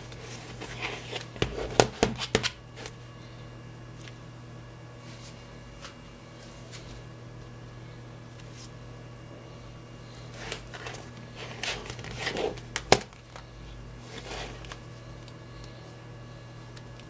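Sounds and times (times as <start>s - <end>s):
steady low hum: 0.0s - 17.0s
smartphones rustling in hands: 10.1s - 15.9s.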